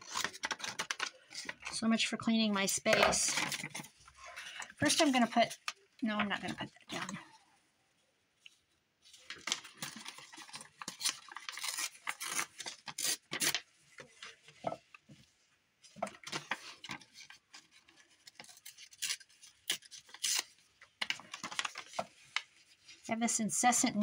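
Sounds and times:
paper rustling and tearing: 0.0s - 1.8s, 9.2s - 14.3s, 16.2s - 23.1s.

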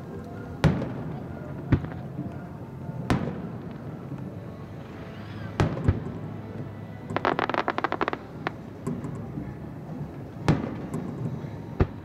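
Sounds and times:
fireworks booming: 7.1s - 9.2s.

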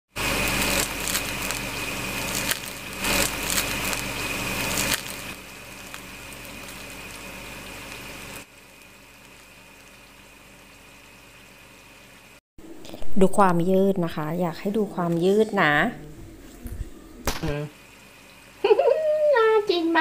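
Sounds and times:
fried food crackling and crunching: 0.2s - 11.6s.

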